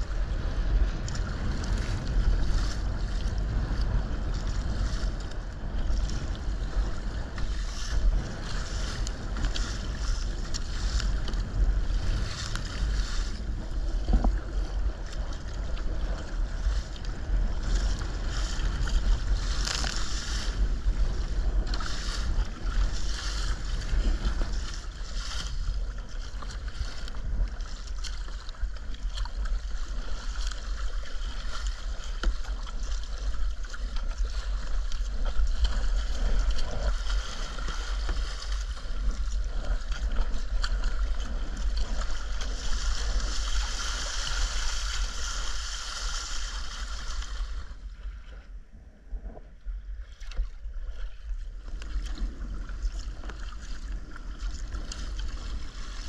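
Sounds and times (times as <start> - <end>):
water splashing against kayak hull: 0.0 - 56.0
wind buffeting microphone: 0.0 - 56.0
wave breaking over bow: 16.2 - 27.9, 30.4 - 48.5.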